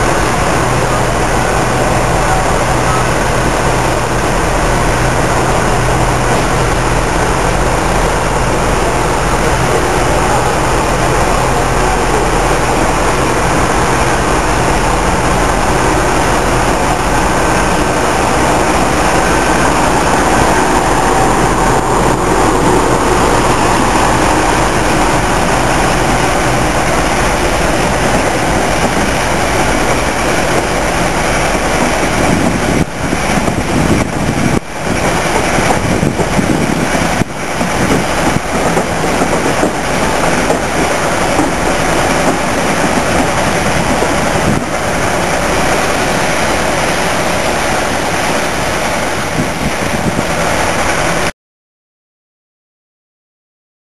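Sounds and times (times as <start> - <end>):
diesel locomotive engines running: 0.0 - 51.3.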